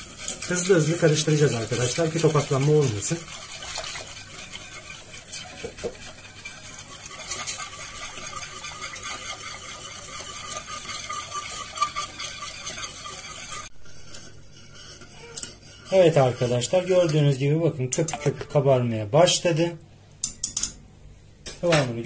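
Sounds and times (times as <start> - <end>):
whisk scraping metal pot: 0.0 - 17.4.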